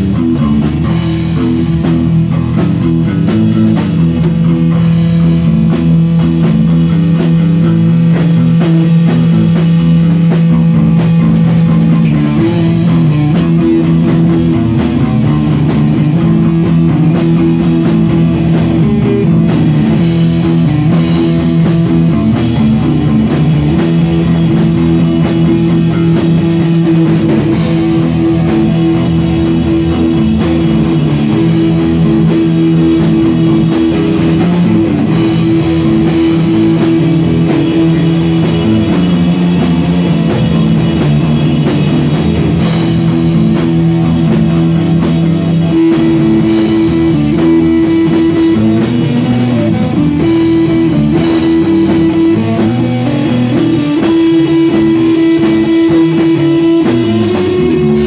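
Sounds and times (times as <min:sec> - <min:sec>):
drum kit with cymbal hits: 0:00.0 - 0:58.0
electric bass: 0:00.0 - 0:58.0
electric guitar: 0:00.0 - 0:58.0.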